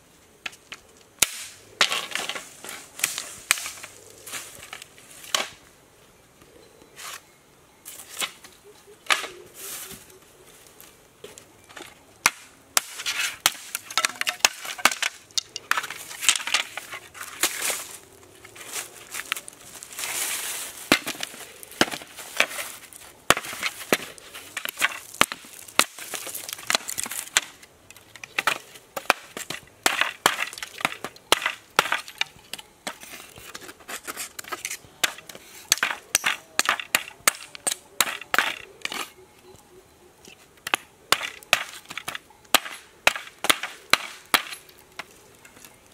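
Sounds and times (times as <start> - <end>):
dry crackling of bamboo: 0.4 - 5.7, 7.9 - 45.9
machete chopping bamboo: 1.2 - 2.4, 12.2 - 16.9, 20.9 - 22.6, 23.3 - 27.6, 28.4 - 32.3, 34.0 - 39.1, 40.6 - 44.6.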